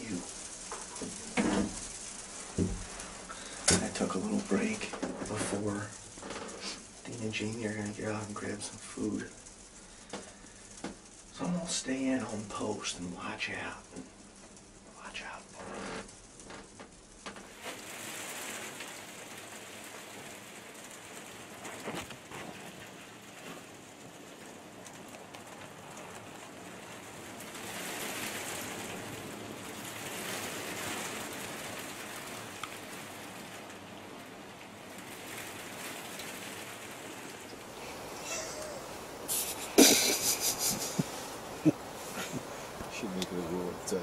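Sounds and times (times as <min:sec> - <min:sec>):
snow pattering on a blind: 0:00.0 - 0:44.0.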